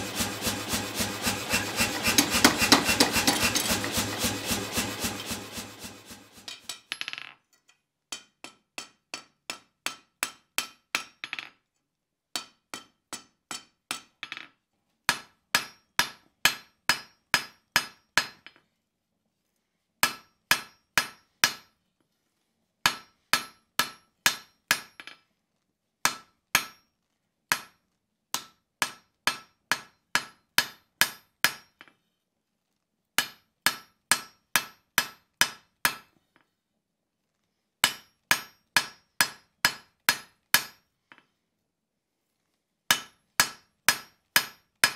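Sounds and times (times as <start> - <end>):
hammer striking metal on anvil: 0.0 - 6.9, 8.1 - 11.2, 15.1 - 18.4, 20.0 - 21.7, 22.9 - 25.1, 26.1 - 26.8, 28.4 - 31.7, 33.2 - 36.1, 37.8 - 40.8, 42.9 - 44.9.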